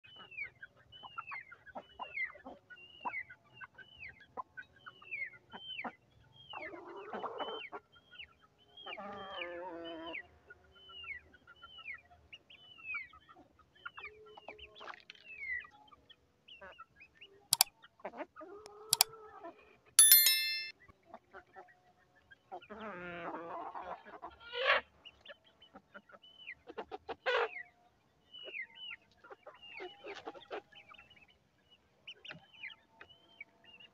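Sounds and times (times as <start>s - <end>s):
brief ringing clink: 20.0s - 20.7s
sharp clicks: 20.0s - 20.7s.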